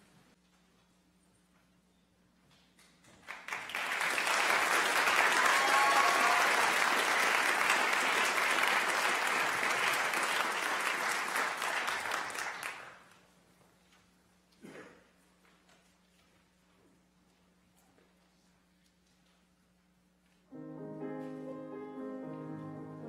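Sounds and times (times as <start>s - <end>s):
audience applauding: 3.2s - 13.2s.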